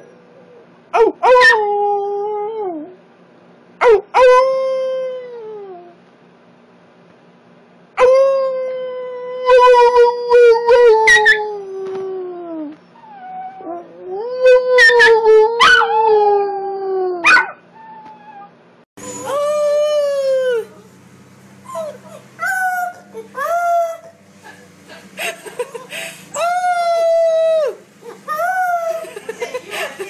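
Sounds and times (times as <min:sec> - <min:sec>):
dog howling: 0:08.0 - 0:20.8, 0:21.7 - 0:24.1, 0:26.3 - 0:29.3
puppy howling: 0:08.0 - 0:20.8, 0:21.6 - 0:24.2, 0:25.6 - 0:29.8
puppy whining: 0:08.0 - 0:20.8, 0:21.6 - 0:24.6, 0:25.2 - 0:29.2.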